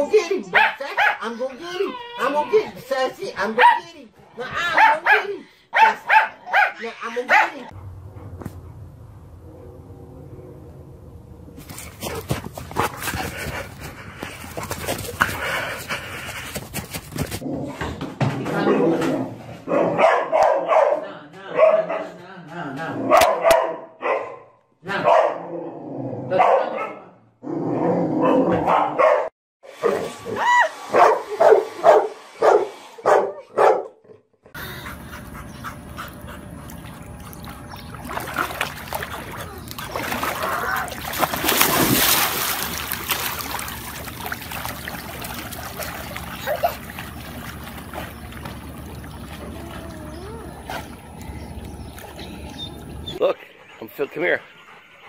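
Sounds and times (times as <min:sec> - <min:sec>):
dog barking: 0:00.5 - 0:01.3, 0:03.6 - 0:03.8, 0:04.7 - 0:07.7, 0:19.7 - 0:22.2, 0:23.0 - 0:25.5, 0:26.3 - 0:27.1, 0:28.2 - 0:30.1, 0:30.9 - 0:34.0
water splashing in a pool: 0:35.8 - 0:53.2.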